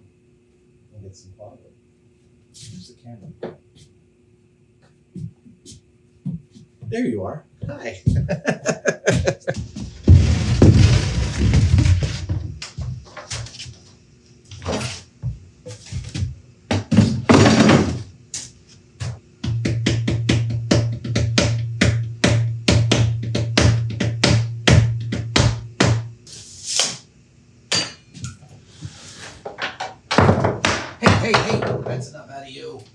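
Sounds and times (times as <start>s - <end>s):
bass line: 8.0s - 12.2s
plywood scraping on table saw: 9.7s - 12.3s.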